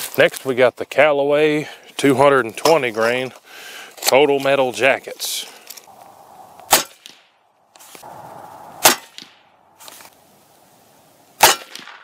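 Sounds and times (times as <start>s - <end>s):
suppressed rifle shots: 8.8s - 9.5s, 11.4s - 12.0s.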